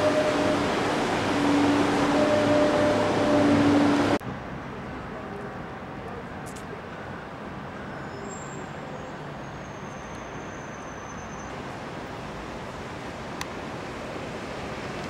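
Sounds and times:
metro train humming and rumbling: 0.0s - 4.2s
distant road traffic: 0.0s - 15.0s.

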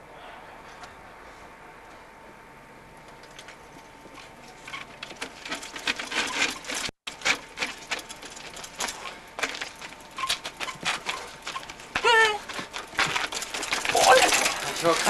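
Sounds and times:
bike knocking on stone steps: 4.0s - 15.0s.

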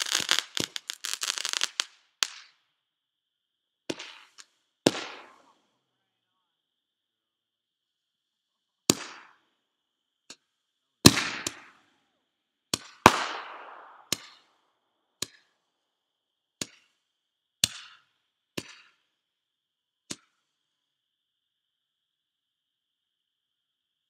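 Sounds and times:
fireworks bangs: 0.0s - 2.5s, 3.9s - 5.6s, 11.0s - 11.8s, 12.9s - 14.5s.

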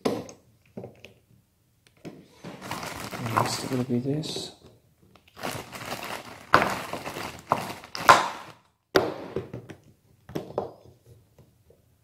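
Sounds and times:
rustling and scraping: 2.3s - 4.6s.

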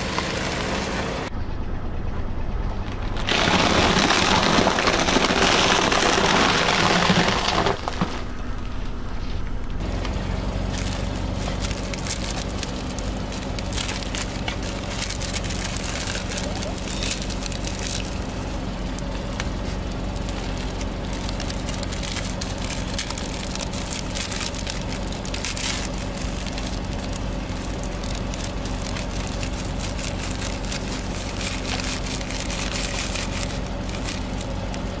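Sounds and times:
car engine hum: 0.0s - 3.3s, 8.2s - 35.0s
plastic wrappers crinkling: 9.8s - 35.0s
snack crumbs crackling: 9.9s - 35.0s.

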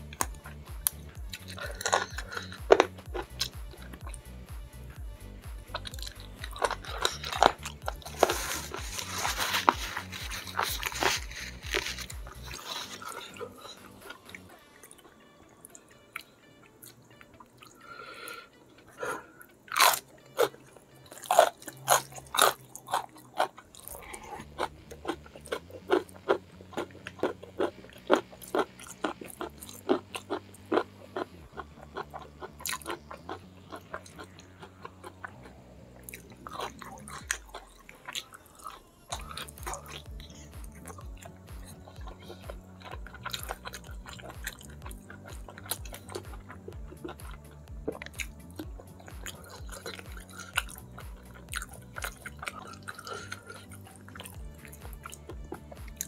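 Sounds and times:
crunchy chewing of vegetable: 0.0s - 56.0s
wet chewing and sucking: 0.0s - 56.0s.

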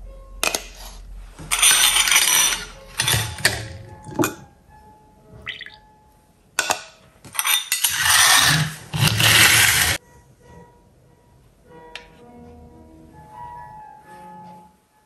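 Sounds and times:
loud rough scraping: 1.4s - 3.9s, 7.4s - 10.0s
metal filter clinking on glass: 1.5s - 4.5s.

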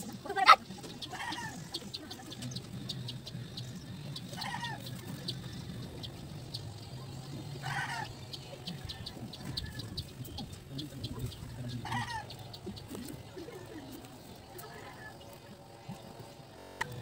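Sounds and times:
chicken clucking: 0.0s - 6.6s, 7.2s - 16.0s
faint rapid ticking: 0.0s - 17.0s
steady low hum: 0.0s - 17.0s.

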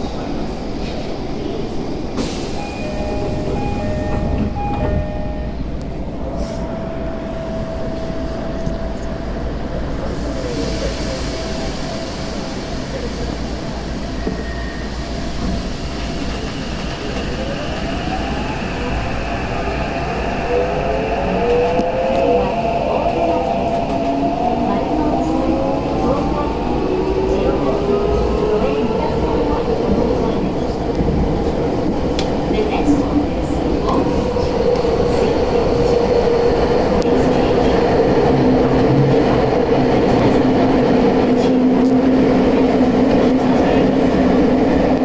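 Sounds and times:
steady train hum: 0.0s - 45.0s.

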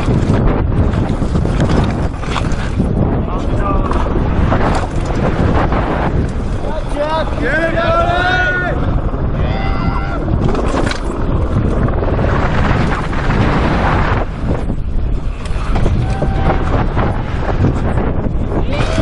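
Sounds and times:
bike knocks and rattles: 0.0s - 7.0s, 10.2s - 19.0s
wind buffeting microphone: 0.0s - 19.0s
tyres on loose dirt: 10.1s - 19.0s.

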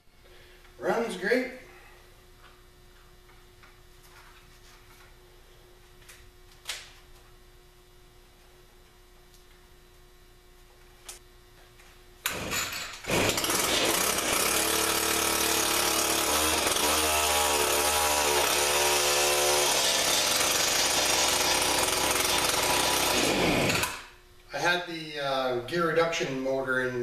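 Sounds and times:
two-stroke auger engine revving: 12.3s - 24.0s.

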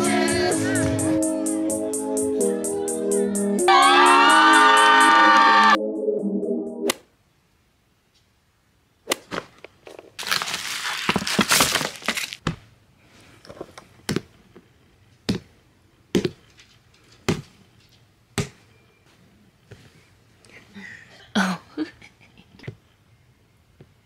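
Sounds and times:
rustling: 9.2s - 13.8s.

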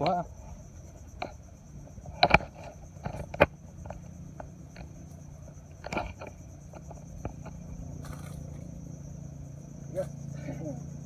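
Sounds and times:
light rustles: 0.0s - 8.8s
high insect trill: 0.0s - 11.0s
sharp clicks and knocks: 2.1s - 8.4s.

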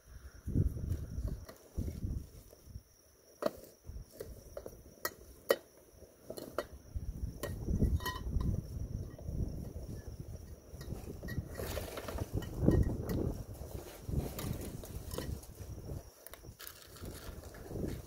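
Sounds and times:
wind rumble on microphone: 0.0s - 2.9s, 6.6s - 18.0s
rustling: 9.7s - 18.0s.

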